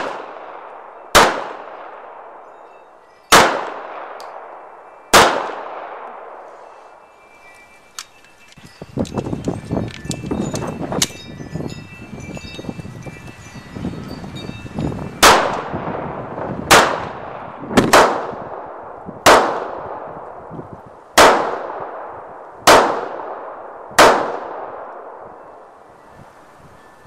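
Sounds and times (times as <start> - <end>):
pistol shots ringing: 0.0 - 6.8, 15.2 - 16.1, 16.7 - 20.1, 21.2 - 25.6.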